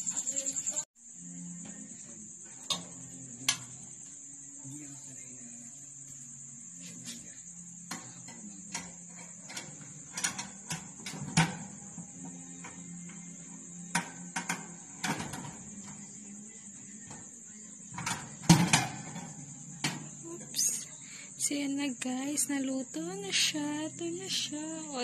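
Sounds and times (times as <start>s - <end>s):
metal rack clicks and knocks: 18.0s - 19.3s.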